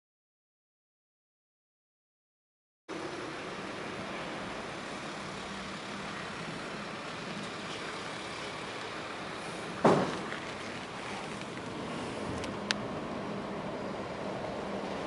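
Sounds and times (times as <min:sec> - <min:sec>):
outdoor background hiss: 0:02.9 - 0:15.0
sharp knock: 0:09.8 - 0:10.3.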